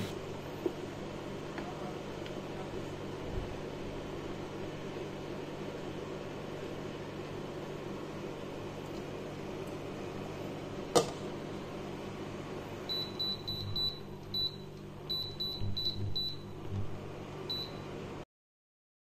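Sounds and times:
steady low hum: 0.0s - 18.2s.

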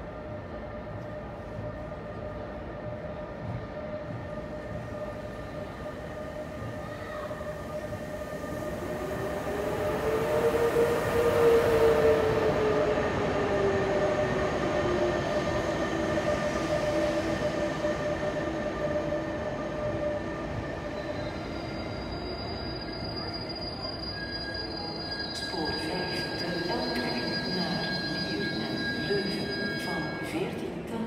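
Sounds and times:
train wheels squealing: 11.4s - 30.4s.

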